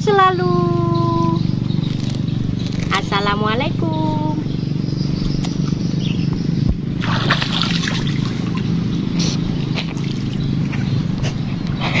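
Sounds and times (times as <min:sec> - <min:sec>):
steady low hum: 0:00.0 - 0:12.0
hands splashing in water: 0:07.0 - 0:08.7, 0:09.7 - 0:10.9.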